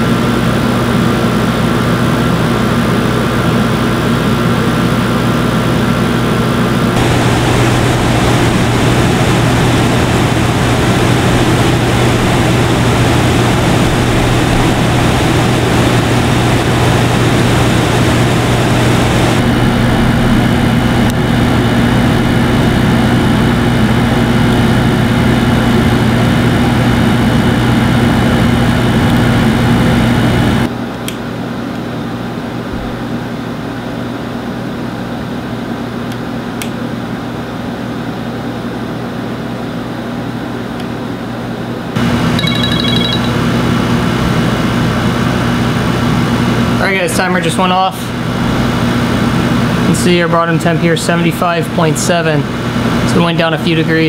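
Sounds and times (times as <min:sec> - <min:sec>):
air conditioner blowing air: 0:00.0 - 0:54.0
higher hum: 0:06.9 - 0:26.2, 0:42.0 - 0:43.8.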